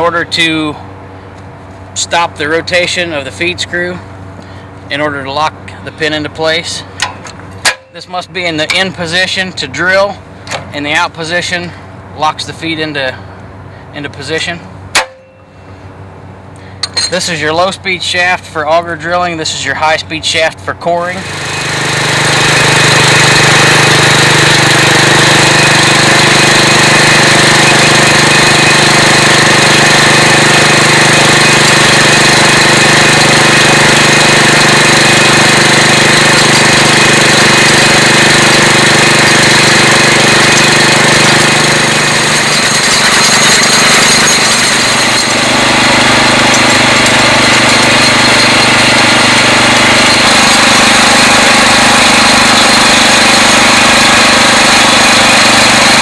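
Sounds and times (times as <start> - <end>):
drill rig engine running: 20.3 - 56.0.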